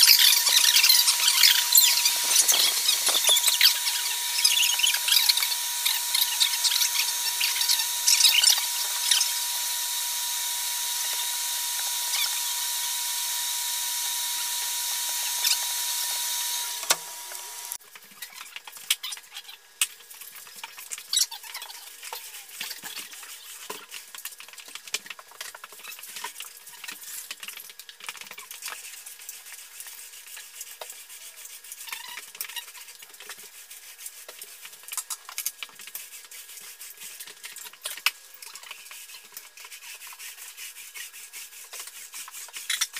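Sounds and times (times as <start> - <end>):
light scraping and rubbing: 0.0 - 9.2
power tool motor whining: 0.0 - 17.8.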